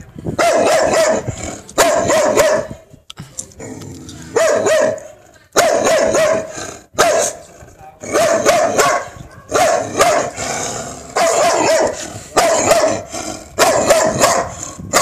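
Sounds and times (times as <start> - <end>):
dog barking: 0.4 - 2.8, 4.4 - 7.4, 8.1 - 10.4, 11.2 - 15.0.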